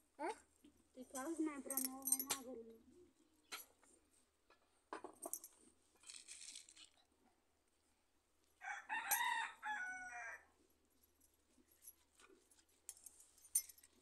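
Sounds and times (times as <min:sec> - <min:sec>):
rooster crowing: 0:08.6 - 0:10.5.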